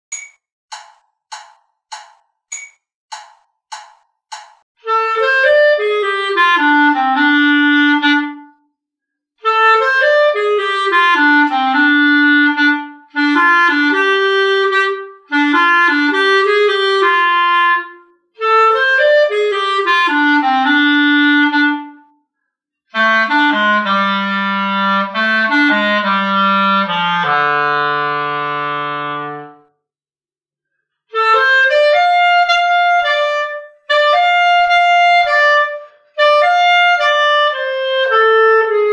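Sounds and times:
solo clarinet jazz melody: 4.8 - 8.7, 9.4 - 22.2, 22.9 - 29.7, 31.1 - 38.9.

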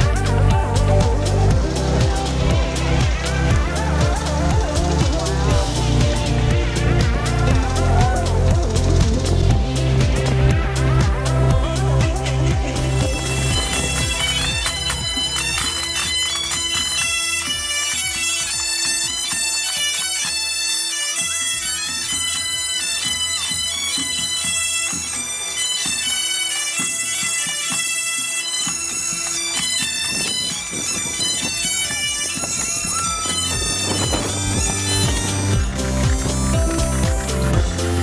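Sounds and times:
drums beating: 0.0 - 20.5, 28.6 - 38.0
bagpipes melody over drones: 0.0 - 38.0.

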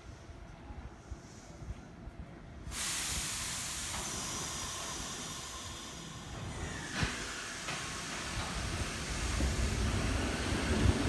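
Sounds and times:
compressed air hissing: 2.7 - 11.0.

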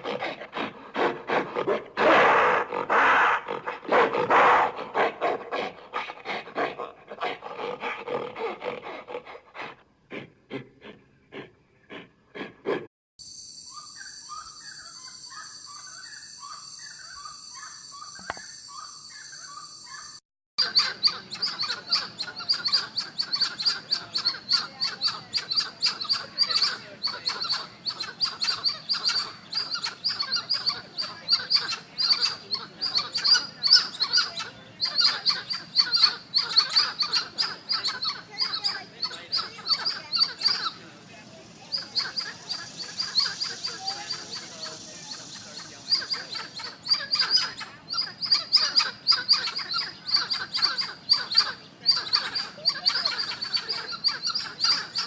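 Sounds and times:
high insect-like drone: 13.2 - 19.9
animal chirping: 13.7 - 40.8, 41.5 - 55.0.

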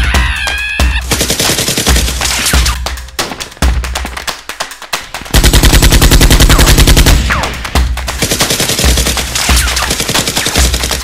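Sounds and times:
automatic gunfire: 1.0 - 2.8, 5.3 - 11.0.

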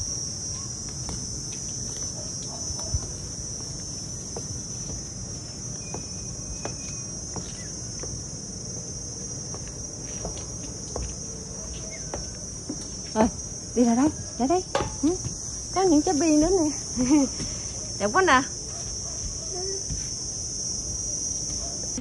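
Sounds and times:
insects chirring: 0.0 - 22.0.

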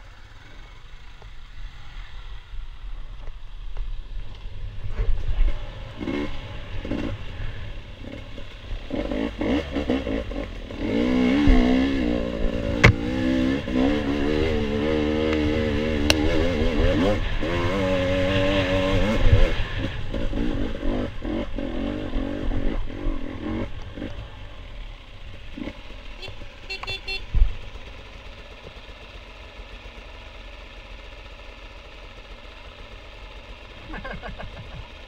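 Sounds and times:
motorcycle engine revving: 0.0 - 35.0
sharp knocks: 12.8 - 13.2.

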